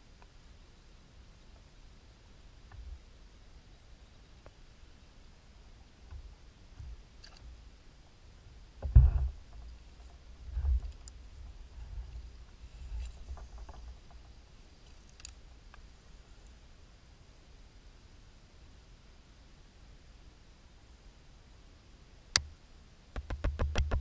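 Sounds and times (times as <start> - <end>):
thumps on a kayak: 8.8 - 11.0
light tackle clicks: 9.2 - 15.8.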